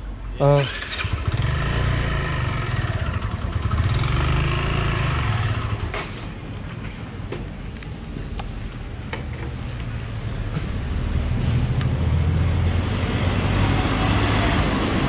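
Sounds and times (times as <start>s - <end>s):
motorcycle engine revving: 0.6s - 6.2s.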